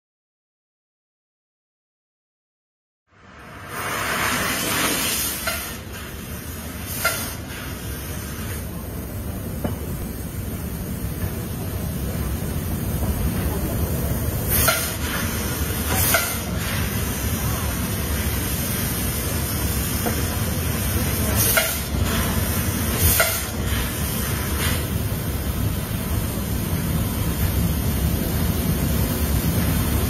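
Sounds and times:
loud hissing blasts: 3.2s - 11.2s, 14.1s - 30.0s
laser cutter hissing: 3.5s - 11.2s, 12.1s - 30.0s.

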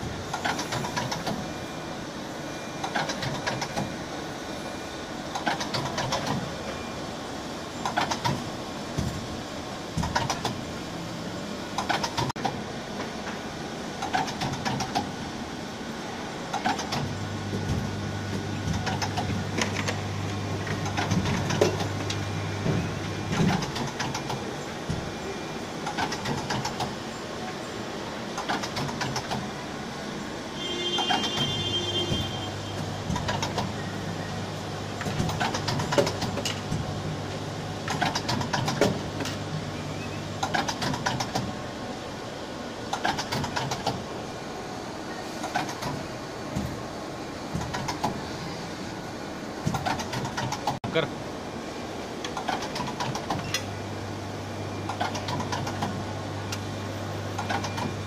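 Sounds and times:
machine clicks and knocks: 0.3s - 1.4s, 2.8s - 4.0s, 5.3s - 6.5s, 7.8s - 9.3s, 9.9s - 10.7s, 11.8s - 13.4s, 14.0s - 15.2s, 16.5s - 25.1s, 25.8s - 27.0s, 28.3s - 29.6s, 31.0s - 33.8s, 35.0s - 39.7s, 40.4s - 41.6s, 42.9s - 44.1s, 45.4s - 46.8s, 47.4s - 48.3s, 49.6s - 50.9s, 52.2s - 53.7s, 54.9s - 56.7s, 57.3s - 58.0s
low machine hum: 15.9s - 28.2s.

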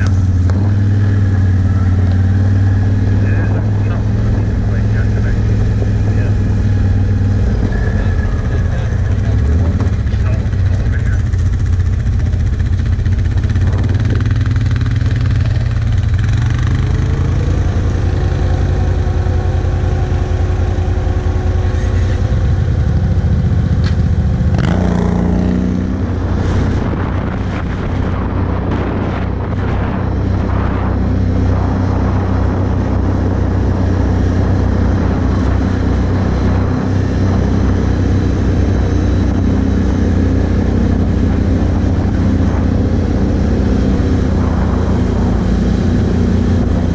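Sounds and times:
atv engine idling and revving: 0.0s - 46.9s.

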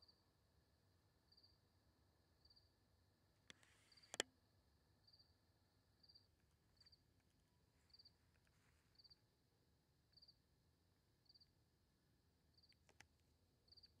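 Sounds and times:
cricket chirping: 0.0s - 2.8s, 3.9s - 7.1s, 7.8s - 9.3s, 10.1s - 10.4s, 11.2s - 11.6s, 12.5s - 13.0s, 13.6s - 14.0s
faint clicks: 3.5s - 4.3s, 12.6s - 13.9s.

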